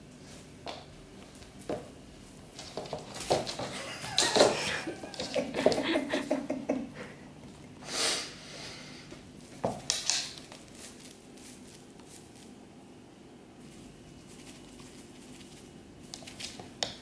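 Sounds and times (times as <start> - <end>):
cat paws scuffling on wood: 0.2 - 5.9, 9.4 - 12.6, 13.6 - 17.0.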